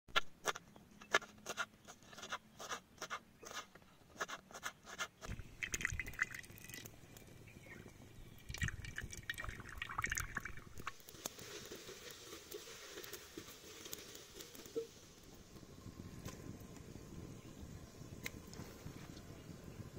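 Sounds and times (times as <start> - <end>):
liquid pouring into a pot: 5.3 - 7.0, 8.4 - 11.0.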